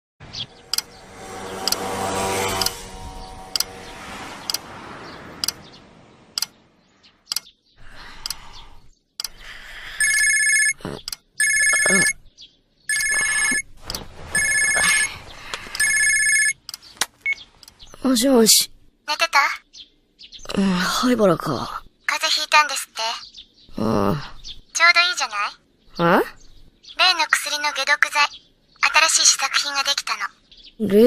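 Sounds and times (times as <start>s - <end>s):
scattered clicks: 0.7s - 0.9s, 6.4s - 6.6s, 7.3s - 7.5s, 9.2s - 9.4s, 15.5s - 17.8s
telephone ringing electronic trill: 10.0s - 10.8s, 11.4s - 12.2s, 12.9s - 13.7s, 14.3s - 15.2s, 15.8s - 16.6s.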